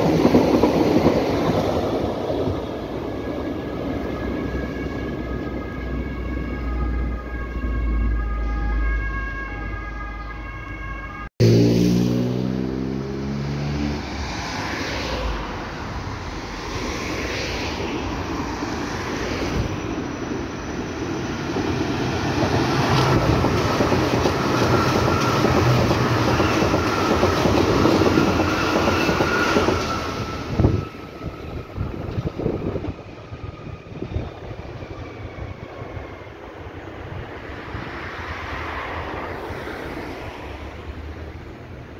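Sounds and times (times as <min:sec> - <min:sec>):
train wheels rumbling on rails: 0:00.0 - 0:04.7, 0:14.0 - 0:41.0
road traffic: 0:00.0 - 0:41.9.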